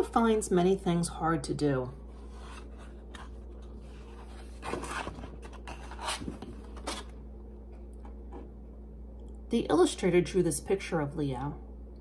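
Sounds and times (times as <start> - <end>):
faint steady hum: 0.0 - 12.0
paper and card rustling: 2.2 - 7.1.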